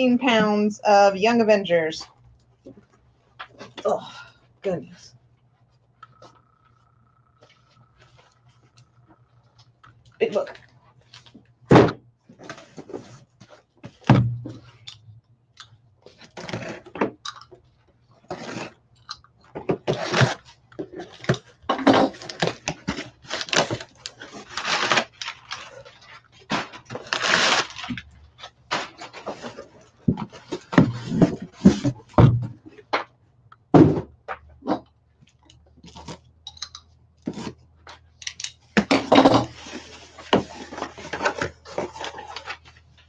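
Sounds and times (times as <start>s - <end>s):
cardboard rustling and scraping: 12.3s - 14.7s, 22.0s - 32.6s, 38.8s - 43.0s.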